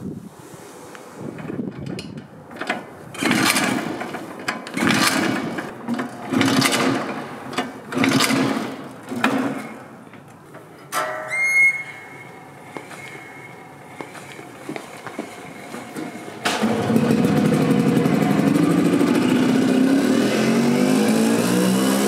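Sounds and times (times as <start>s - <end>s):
scooter engine kick-started: 1.4s - 10.0s, 12.8s - 22.0s
high squeal: 11.0s - 14.6s.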